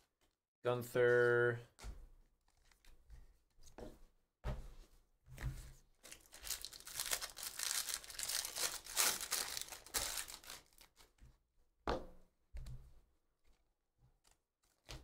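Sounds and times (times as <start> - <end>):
foil wrapper tearing and crinkling: 6.1 - 11.0.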